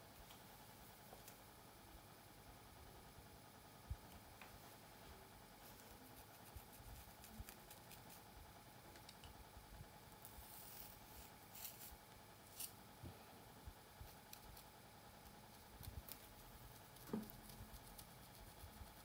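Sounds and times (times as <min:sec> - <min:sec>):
scratching through hair: 0:05.6 - 0:08.3, 0:10.2 - 0:12.8.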